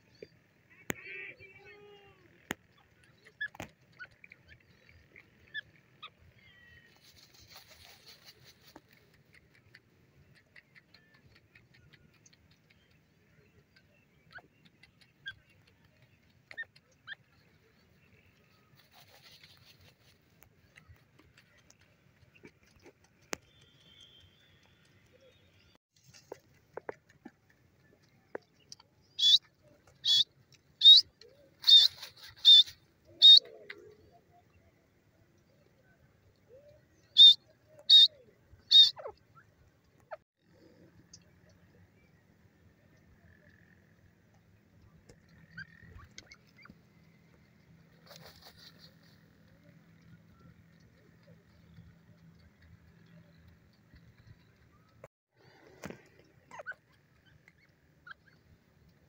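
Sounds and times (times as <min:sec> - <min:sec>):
bird scratching in dry soil: 0:06.9 - 0:09.8, 0:18.6 - 0:23.8, 0:31.6 - 0:33.4, 0:47.9 - 0:49.3
shrill bird call notes: 0:29.2 - 0:29.4, 0:30.8 - 0:33.4, 0:37.1 - 0:39.1.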